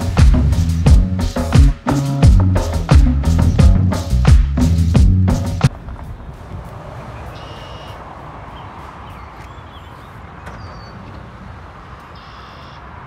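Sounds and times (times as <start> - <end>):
steady low rumble: 0.0 - 8.4
bird calling: 7.0 - 12.9
faint bird chirps: 7.1 - 11.2, 11.8 - 12.8.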